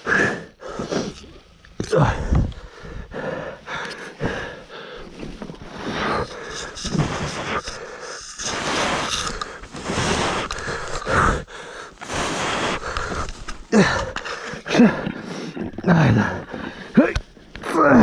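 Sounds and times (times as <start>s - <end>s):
heavy breathing: 0.0s - 17.1s.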